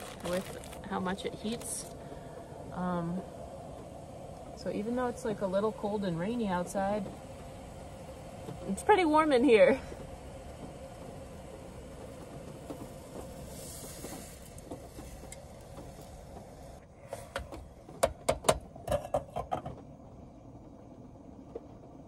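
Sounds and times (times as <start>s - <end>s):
portable stove hissing: 0.0s - 17.6s
sharp clicks and knocks: 17.2s - 19.9s.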